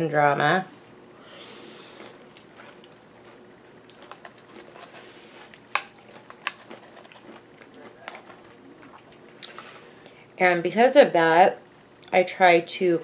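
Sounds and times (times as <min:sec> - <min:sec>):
soft chewing: 0:01.4 - 0:10.4.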